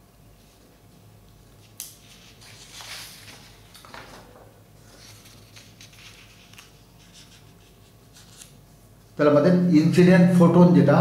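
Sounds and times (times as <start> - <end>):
paper rustling: 1.8 - 8.6.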